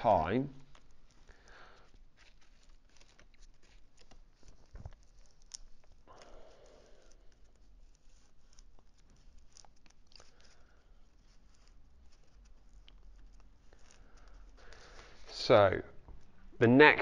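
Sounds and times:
vinyl decal sheet being peeled: 0.6 - 15.4
scratchy paper ticks: 0.7 - 15.2.

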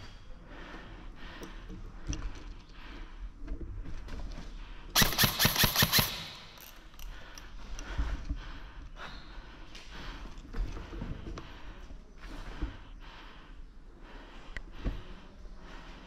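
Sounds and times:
airsoft rifle full-auto burst: 5.0 - 6.5.

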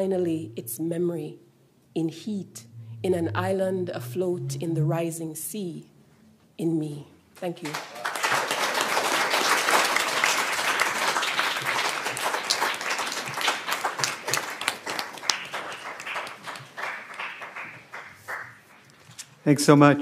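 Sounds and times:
audience applauding: 7.6 - 18.9.

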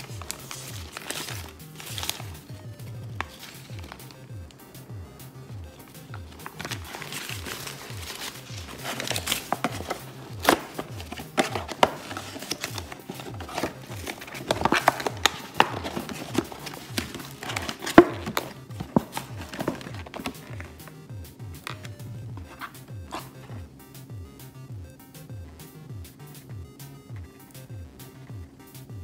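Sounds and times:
paper wrapper and box crinkling: 0.0 - 2.4, 3.2 - 4.5, 5.8 - 20.9, 21.6 - 23.7
background music with low beat: 0.0 - 29.0.

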